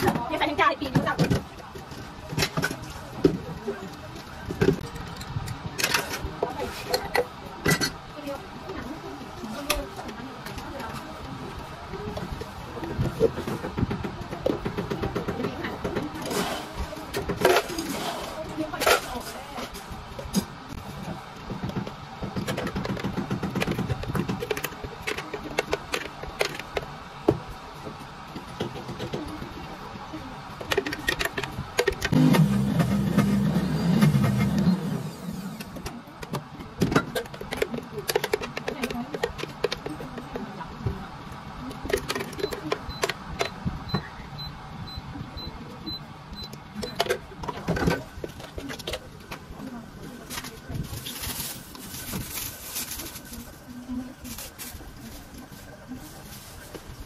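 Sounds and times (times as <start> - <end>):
plastic jug clattering against cups: 36.3 - 40.5.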